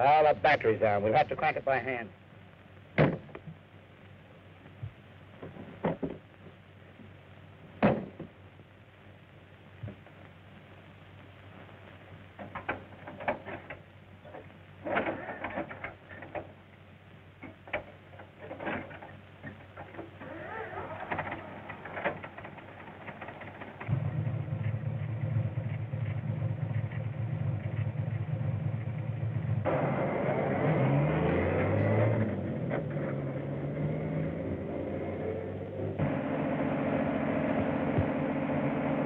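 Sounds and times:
engine running low: 17.4s - 39.0s.

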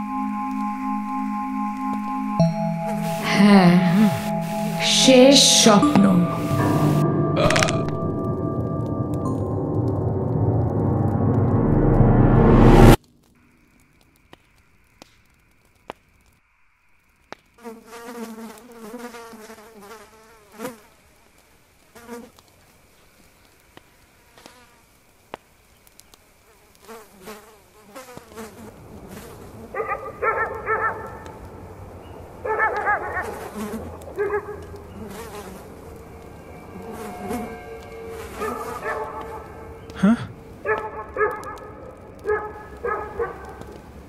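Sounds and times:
insects buzzing: 0.0s - 5.8s, 13.4s - 44.0s
faint ticks: 20.6s - 29.4s, 33.6s - 38.3s.

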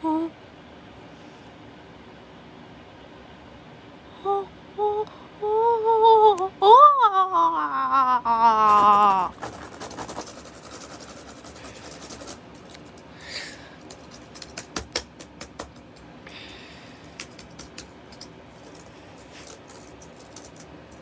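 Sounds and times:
hand rubbing over keyboard: 8.6s - 13.0s.

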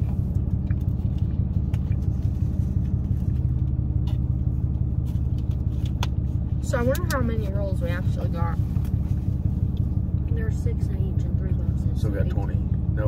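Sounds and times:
car engine idling: 0.0s - 13.0s.

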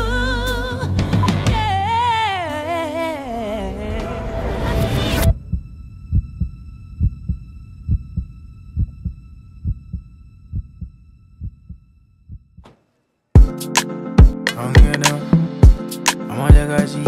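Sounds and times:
heartbeat thumps: 5.3s - 12.7s, 14.2s - 15.0s, 15.6s - 15.8s, 16.5s - 16.7s
loud music with heavy beat: 13.4s - 17.0s.

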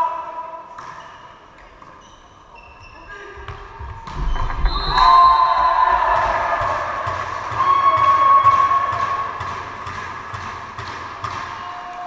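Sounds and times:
crowd shouting and cheering: 4.0s - 9.8s, 11.0s - 12.0s.

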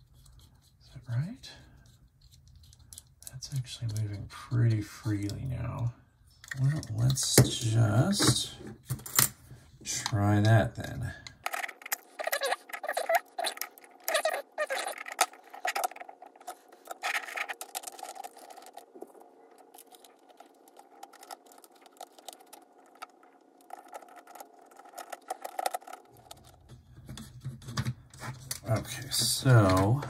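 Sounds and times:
clicking and rattling: 11.3s - 30.0s.

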